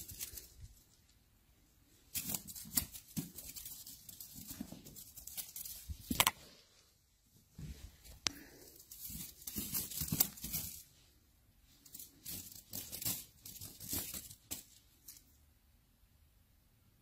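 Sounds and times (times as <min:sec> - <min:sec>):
cat claws scratching: 0:00.0 - 0:01.1, 0:02.1 - 0:06.4, 0:08.5 - 0:11.0, 0:11.8 - 0:15.4.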